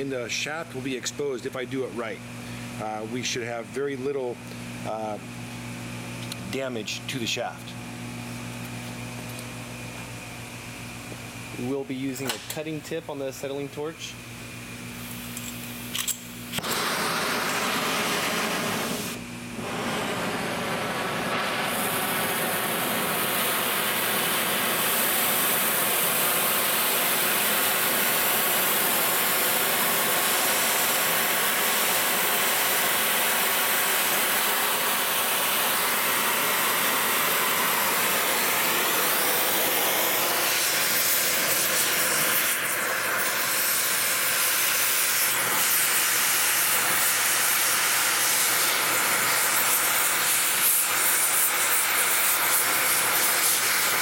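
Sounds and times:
cutting torch flame hissing: 0:14.9 - 0:54.0.

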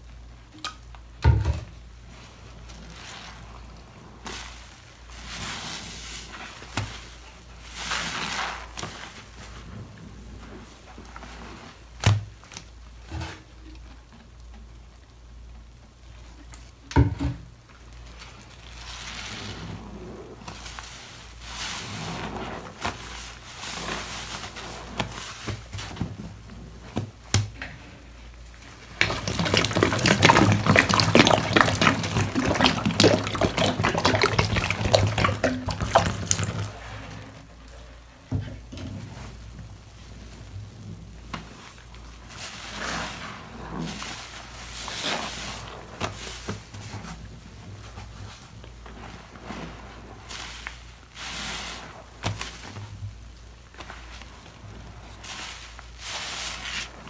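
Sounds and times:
sponges squelching in soapy water: 0:01.7 - 0:16.9, 0:17.5 - 0:57.0
water splashing: 0:28.7 - 0:37.5.

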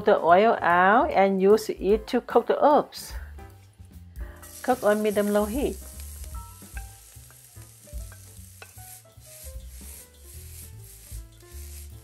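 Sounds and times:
quiet background music: 0:00.0 - 0:12.0
peppers sizzling in oil: 0:03.4 - 0:12.0
wooden spatula stirring in wok: 0:04.5 - 0:12.0.

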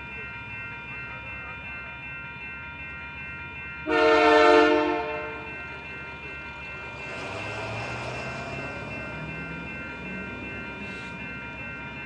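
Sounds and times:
train rumble: 0:00.0 - 0:12.0
locomotive air horn blast: 0:03.9 - 0:05.1.

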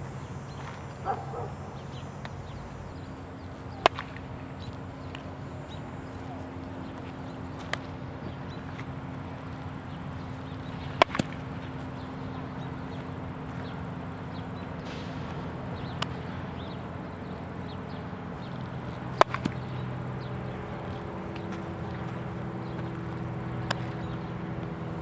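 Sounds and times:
high insect drone: 0:00.0 - 0:25.0
baseball bat cracks: 0:03.7 - 0:04.3, 0:10.8 - 0:11.4, 0:15.1 - 0:16.3, 0:19.1 - 0:19.7, 0:23.6 - 0:24.0.

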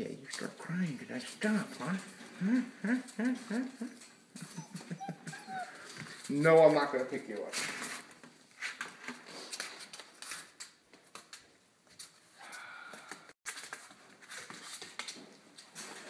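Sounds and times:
puppy whining: 0:02.3 - 0:06.3.

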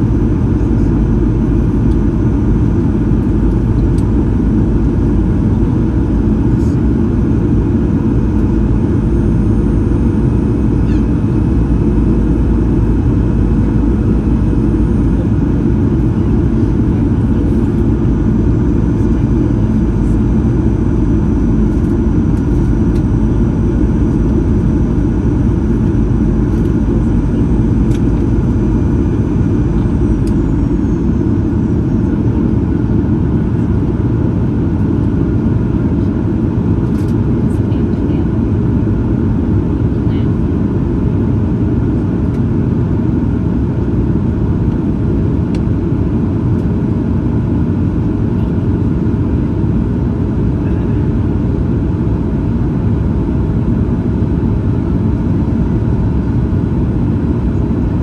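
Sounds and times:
airplane cabin rumble: 0:00.0 - 0:58.0
steady whining tones: 0:07.7 - 0:33.4.

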